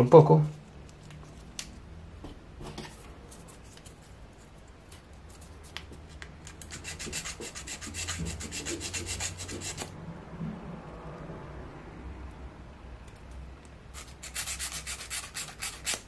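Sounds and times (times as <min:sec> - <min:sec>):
hand-sanding wood: 0:06.6 - 0:09.9, 0:14.0 - 0:16.0.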